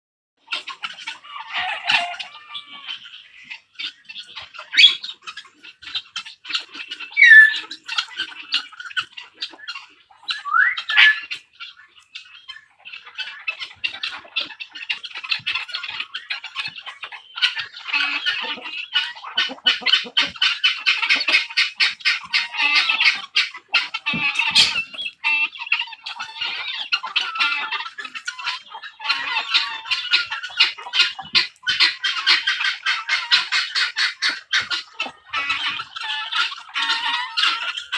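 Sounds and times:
poultry squawking: 0.5 - 37.9
short rising bird calls: 7.2 - 7.7, 10.3 - 11.3.

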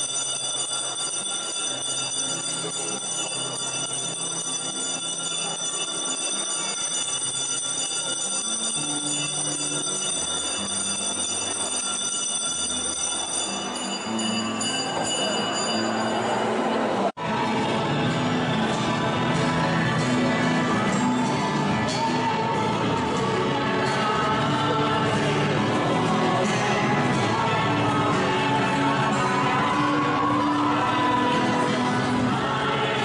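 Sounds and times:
church bells ringing: 0.0 - 17.1.

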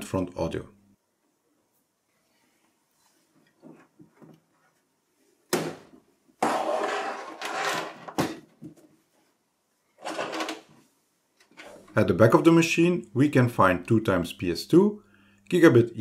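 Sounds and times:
metal case scraping on desk: 6.4 - 8.3, 10.0 - 10.7.

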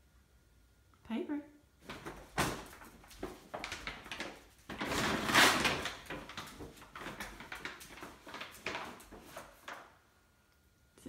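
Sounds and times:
plastic bag crinkling: 1.8 - 10.0.

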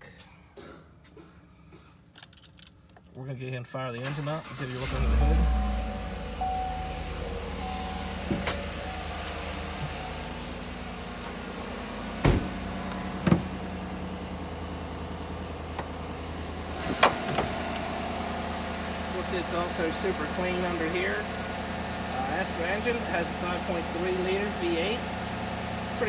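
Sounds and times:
truck engine idling: 4.4 - 26.0
door and hood latch clunks: 12.2 - 13.5.

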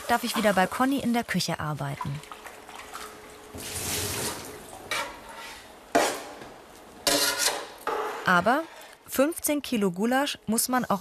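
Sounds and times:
spoon scraping a pot: 7.0 - 9.0.

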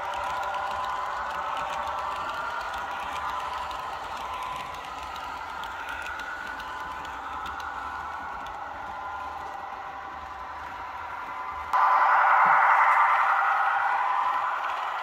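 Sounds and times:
model train coaches rolling: 0.0 - 11.7.

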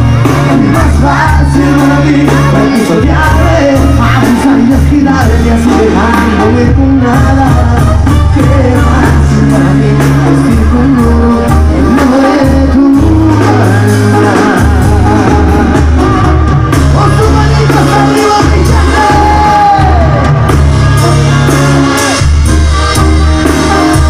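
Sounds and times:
crowd shouting: 0.0 - 6.6, 13.0 - 24.0
brass band playing: 0.0 - 24.0
person singing: 0.0 - 24.0.

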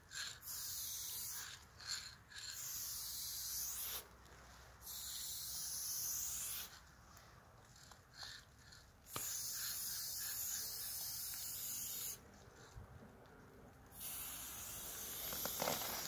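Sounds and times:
spray paint can hissing: 0.2 - 1.6, 2.4 - 4.1, 4.8 - 6.8, 9.1 - 12.2, 13.9 - 16.0.

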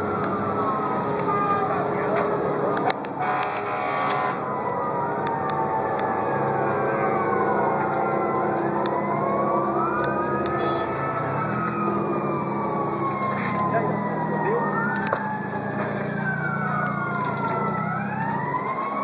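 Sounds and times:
emergency sirens wailing: 0.0 - 19.0.

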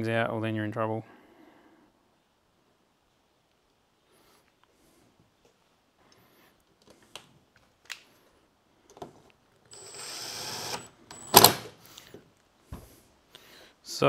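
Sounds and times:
cordless drill driving screw: 9.7 - 11.7.

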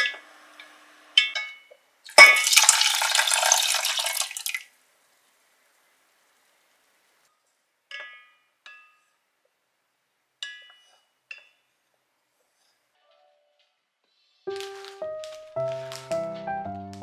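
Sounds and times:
wooden spoon clinking on saucepan: 7.9 - 9.2, 10.4 - 11.7.

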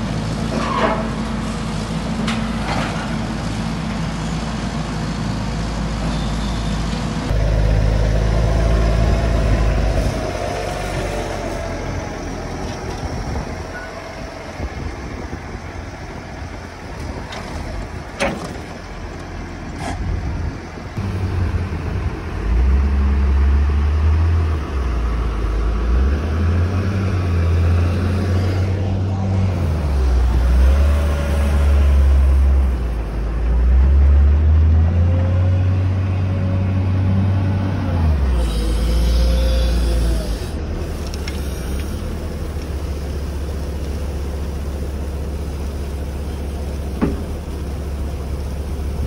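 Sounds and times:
tractor engine running: 7.0 - 34.5, 38.1 - 49.0.

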